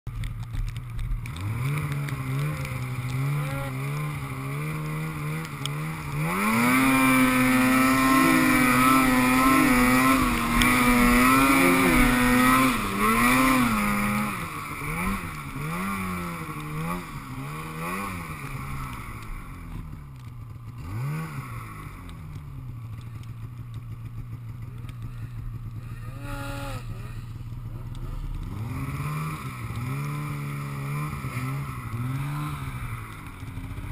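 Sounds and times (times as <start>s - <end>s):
snowmobile engine revving: 1.0s - 33.9s.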